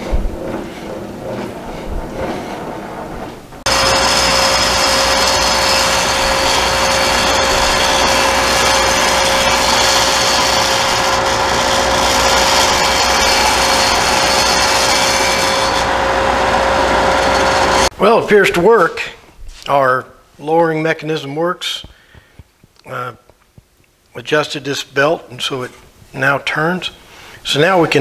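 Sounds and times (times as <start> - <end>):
drum sander running: 0.0 - 18.0.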